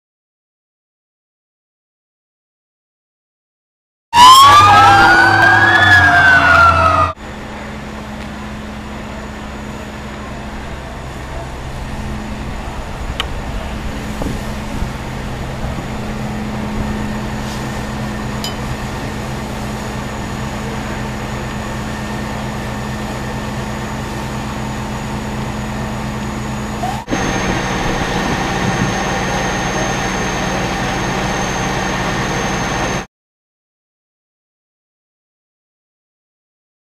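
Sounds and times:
fire engine siren wailing: 0:04.2 - 0:33.1
engine low hum: 0:06.7 - 0:33.1.

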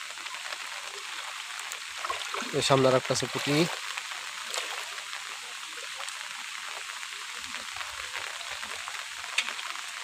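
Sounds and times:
heavy rain on water: 0:00.0 - 0:10.0
wading sloshes: 0:02.0 - 0:02.6.

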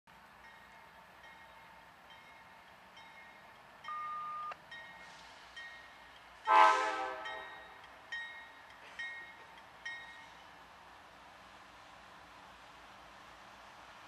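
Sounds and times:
crossing bell dinging: 0:00.4 - 0:10.4
locomotive air horn blast: 0:06.5 - 0:07.4.

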